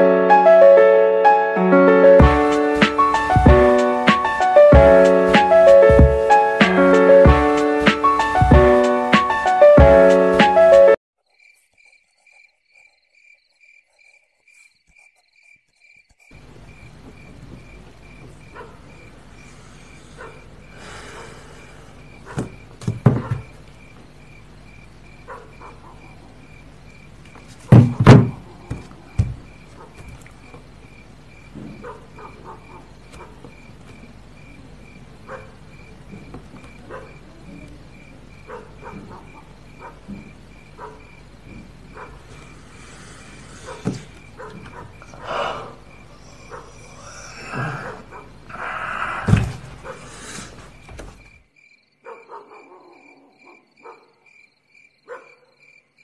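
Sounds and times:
cricket chirping: 0:11.2 - 0:56.0
knocks and thump: 0:22.3 - 0:23.6, 0:27.4 - 0:30.6, 0:31.5 - 0:31.9, 0:43.8 - 0:44.9, 0:49.2 - 0:49.8.

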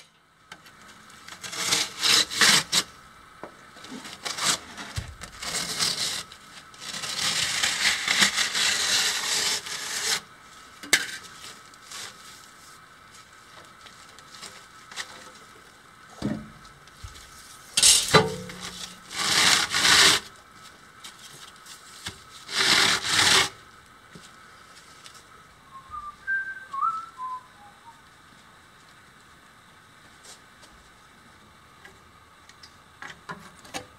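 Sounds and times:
concrete slabs being cut: 0:01.4 - 0:02.9, 0:04.3 - 0:10.3, 0:18.6 - 0:20.3, 0:22.5 - 0:23.6.

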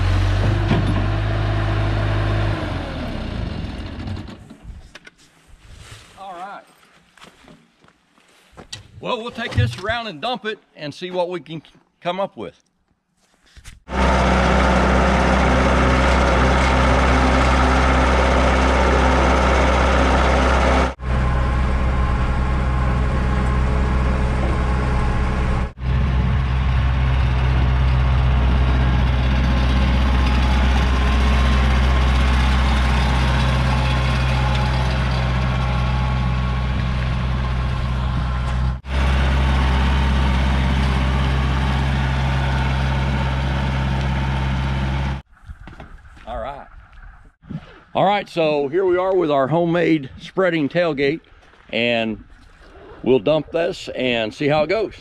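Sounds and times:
truck engine humming: 0:00.0 - 0:04.5, 0:13.9 - 0:45.3.

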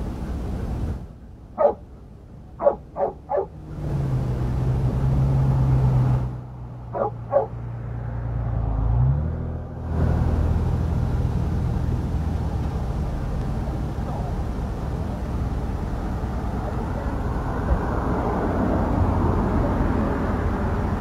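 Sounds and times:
vehicle engine humming: 0:00.0 - 0:21.0
dog barking: 0:01.6 - 0:01.8, 0:02.6 - 0:03.6, 0:06.9 - 0:07.6.

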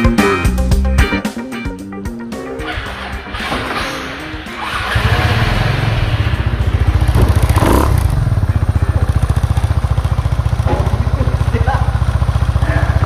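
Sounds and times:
rattly noise: 0:02.6 - 0:12.2
scooter engine idling: 0:04.4 - 0:13.0.

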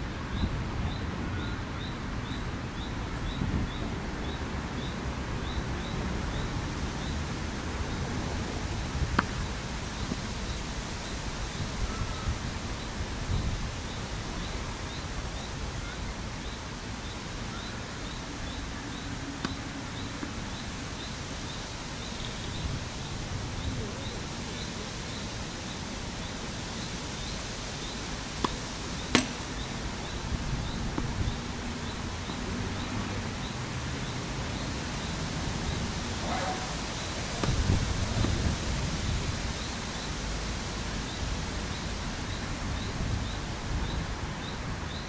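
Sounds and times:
outdoor background noise: 0:00.0 - 0:45.0
sharp knocks: 0:28.4 - 0:29.6.

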